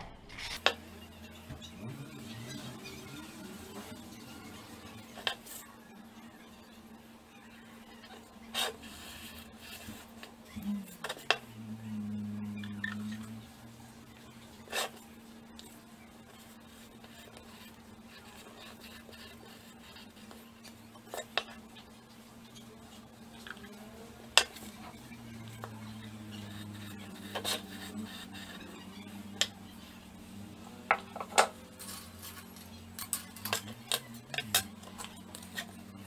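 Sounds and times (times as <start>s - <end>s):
steady low hum: 0.0s - 36.0s
low drone dropping in pitch: 10.5s - 14.5s.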